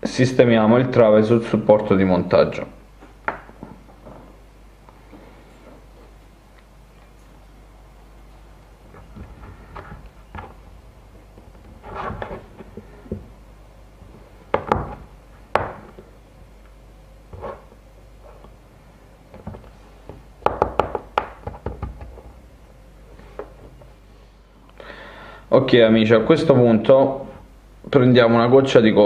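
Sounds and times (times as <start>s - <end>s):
knocks and taps on wood: 19.4s - 22.2s.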